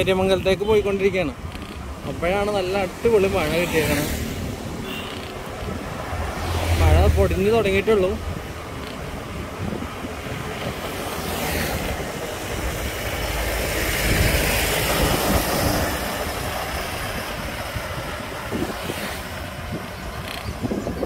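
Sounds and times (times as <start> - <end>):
road and wind noise: 0.0 - 21.0
car overtaking: 1.1 - 21.0.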